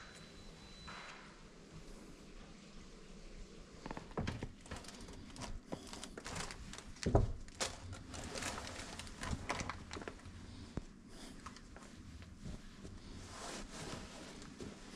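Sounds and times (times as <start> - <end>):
bags rustling: 4.5 - 10.4.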